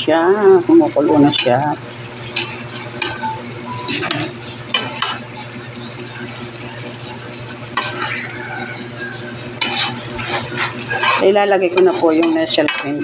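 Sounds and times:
sauce sizzling: 0.4 - 12.6
spatula scraping wok: 0.8 - 5.3, 7.6 - 13.0.

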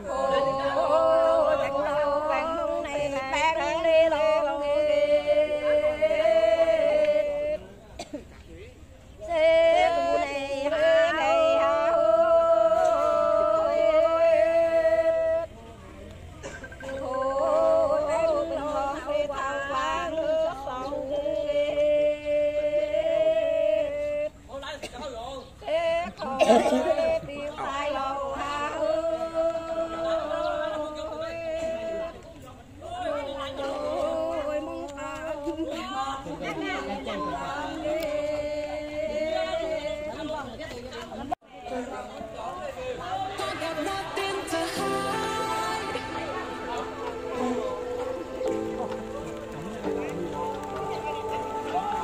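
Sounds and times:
ornamented chanted melody: 0.0 - 7.8, 9.2 - 15.5, 16.8 - 24.3, 25.6 - 32.2, 42.9 - 52.0
person singing: 43.0 - 52.0.

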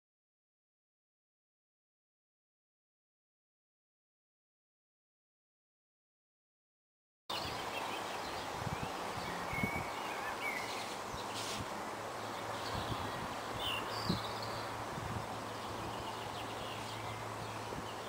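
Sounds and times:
outdoor background hiss: 7.3 - 18.0
small birds chirping: 7.3 - 18.0.

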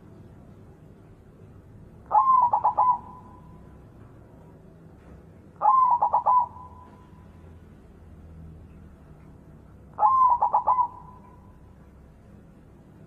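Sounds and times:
dove cooing: 2.1 - 3.6, 5.6 - 7.2, 10.0 - 11.6.

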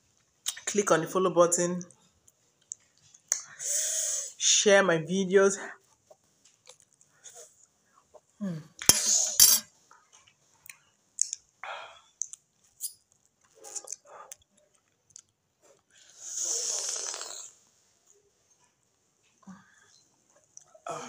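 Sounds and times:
metal spoon clinking bowl: 8.9 - 9.7.

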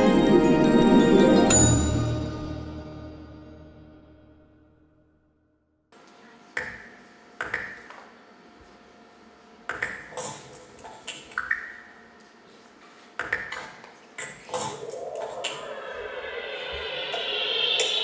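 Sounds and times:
faint steady drone: 14.7 - 18.0
metallic pings with ringing tail: 14.8 - 18.0.

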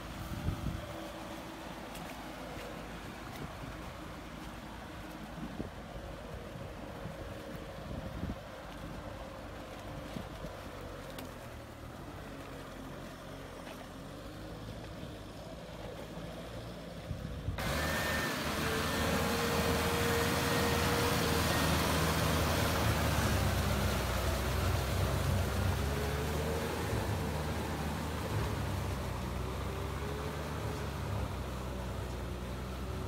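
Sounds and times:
churning mud and water: 0.0 - 33.0
tractor diesel engine under load: 0.0 - 33.0.

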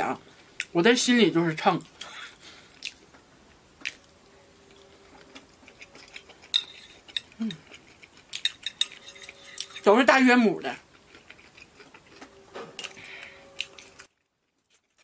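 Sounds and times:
person humming low: 7.4 - 7.6.

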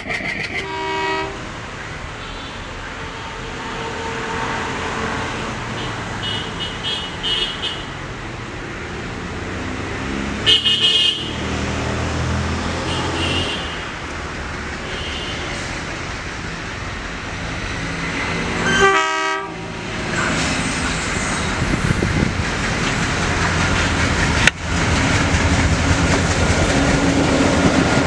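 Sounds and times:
locomotive horn blast: 0.4 - 1.5, 12.8 - 14.0, 18.6 - 19.8
diesel locomotive engine rumble: 15.6 - 28.0.

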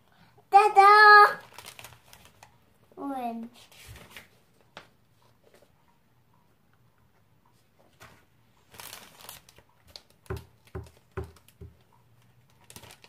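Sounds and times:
paper rustling: 1.4 - 2.5, 3.6 - 4.9, 7.9 - 11.4, 12.6 - 13.0.

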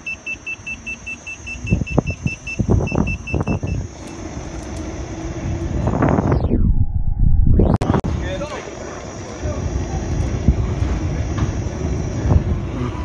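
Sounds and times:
rapid high warning beeps: 0.0 - 4.1
wind noise on microphone: 1.4 - 13.0.

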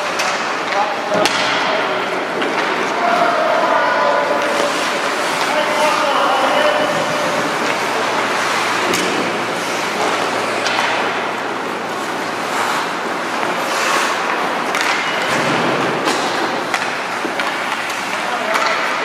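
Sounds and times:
hockey sticks clacking on puck: 0.0 - 1.7, 2.4 - 3.3, 4.4 - 11.1, 12.0 - 19.0
skates scraping ice: 2.4 - 11.1, 11.7 - 19.0.

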